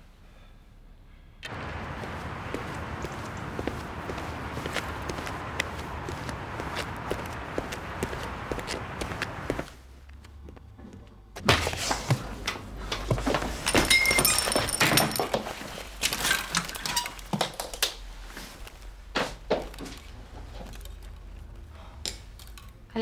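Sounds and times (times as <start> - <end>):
hangers rattling on metal rails: 13.6 - 17.3.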